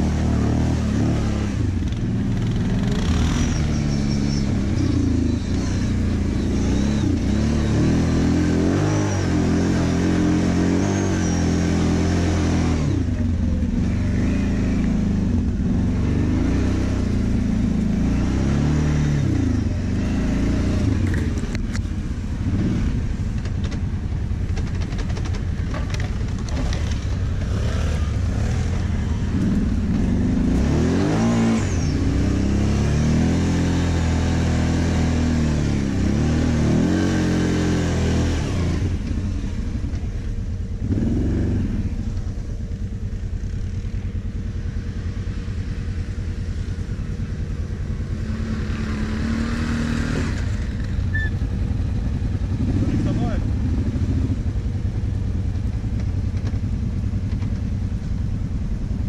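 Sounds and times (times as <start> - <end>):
quad bike engine revving: 0.0 - 56.7.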